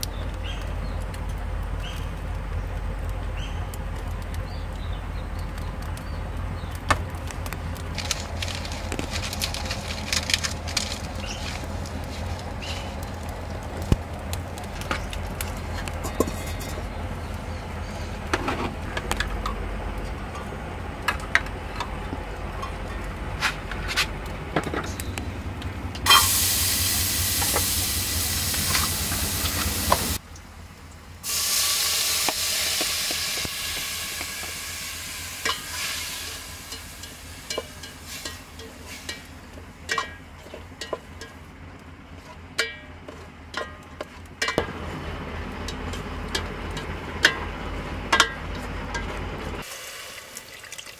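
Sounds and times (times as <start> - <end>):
tomatoes sizzling in pot: 3.3 - 23.5, 24.9 - 30.2, 31.2 - 50.9
metal ladle clinking and scraping: 15.6 - 17.0, 26.1 - 26.3, 36.7 - 39.3, 39.9 - 41.4, 42.2 - 44.6.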